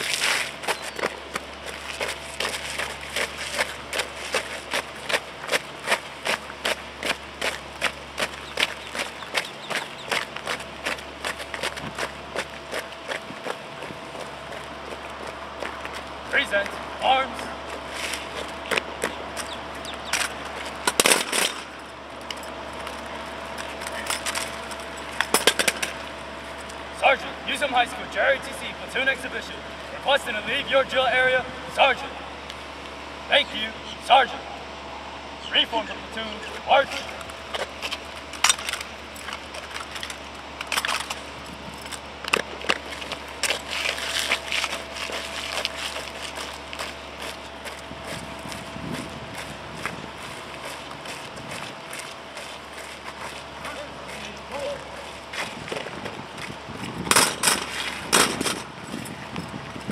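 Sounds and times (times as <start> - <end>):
footsteps on asphalt: 0.0 - 26.9, 36.0 - 59.9.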